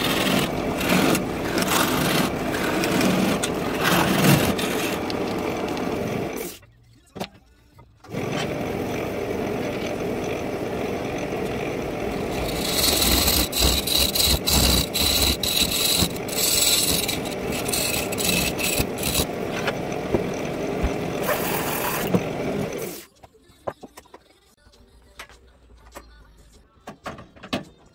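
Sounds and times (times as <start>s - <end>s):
gouge scraping wood: 0.0s - 6.0s, 12.1s - 22.8s
wood lathe spinning: 0.0s - 6.6s, 8.1s - 23.0s.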